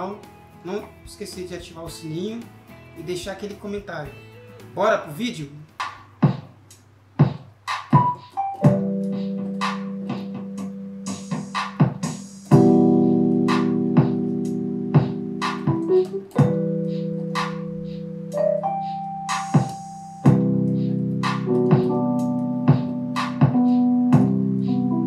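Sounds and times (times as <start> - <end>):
piano chords: 7.9 - 25.0
piano melody notes: 8.0 - 25.0.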